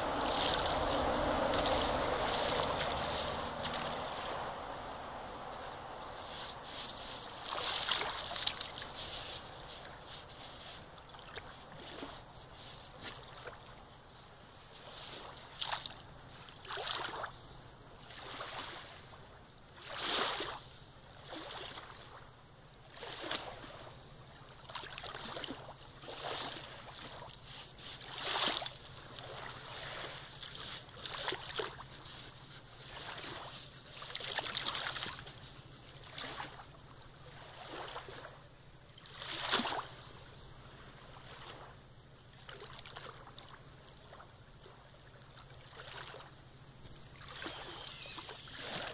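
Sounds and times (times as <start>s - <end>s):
dog digging in wet sand: 0.0s - 17.3s, 24.7s - 38.3s.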